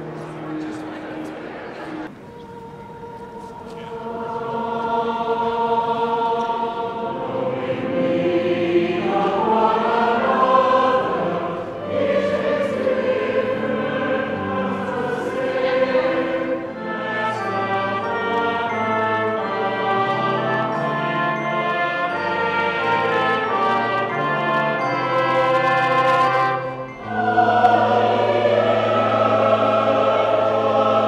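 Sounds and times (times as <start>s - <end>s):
mixed choir singing: 0.0s - 31.0s
tuba: 6.8s - 31.0s
trumpet: 16.5s - 28.6s.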